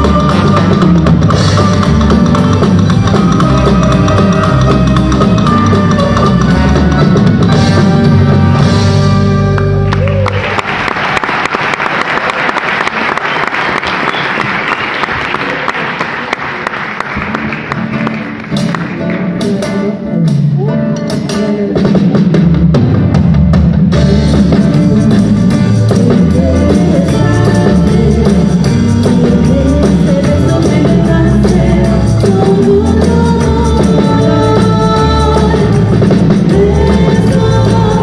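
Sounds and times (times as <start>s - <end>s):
drum kit: 0.0s - 10.5s, 17.2s - 38.0s
bass line: 0.0s - 10.9s, 20.1s - 38.0s
live band playing: 0.0s - 38.0s
people clapping: 9.6s - 19.4s.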